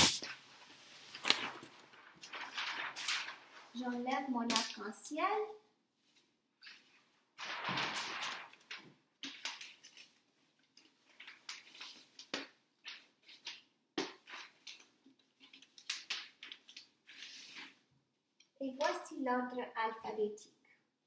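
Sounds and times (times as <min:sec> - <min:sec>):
paper rustling and crinkling: 0:00.2 - 0:04.8, 0:06.0 - 0:17.8.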